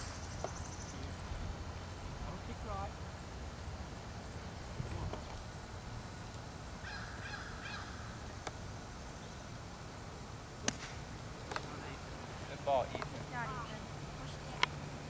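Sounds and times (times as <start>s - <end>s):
low outdoor rumble: 0.0s - 15.0s
bird calling: 5.2s - 8.4s.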